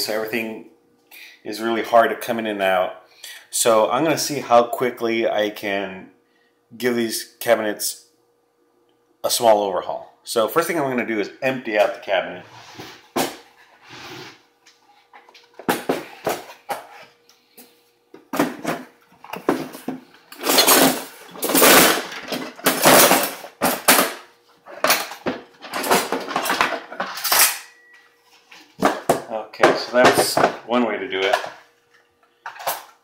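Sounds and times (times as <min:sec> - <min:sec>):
dishes and utensils clattering: 0:19.4 - 0:27.9.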